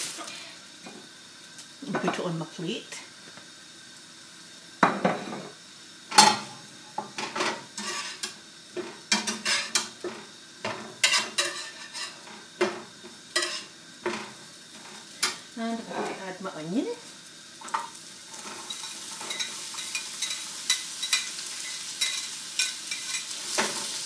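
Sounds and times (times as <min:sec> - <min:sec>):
faint frying sizzle: 0:00.0 - 0:24.0
spatula scraping a frying pan: 0:07.1 - 0:16.2, 0:17.7 - 0:24.0.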